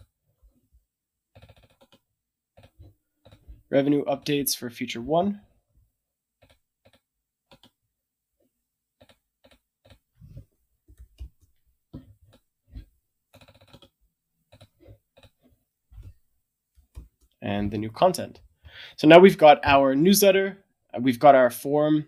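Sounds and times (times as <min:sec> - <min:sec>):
keyboard and mouse clicks: 0:01.4 - 0:02.0, 0:02.6 - 0:03.6, 0:06.4 - 0:07.8, 0:09.0 - 0:13.9, 0:14.5 - 0:15.4, 0:16.8 - 0:17.8.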